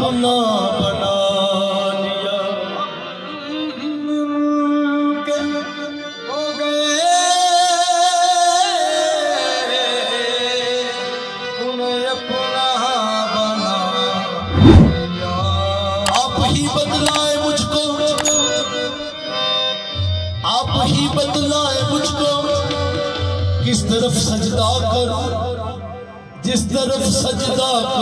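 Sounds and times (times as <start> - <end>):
harmonium chords: 0.0 - 14.5, 15.1 - 28.0.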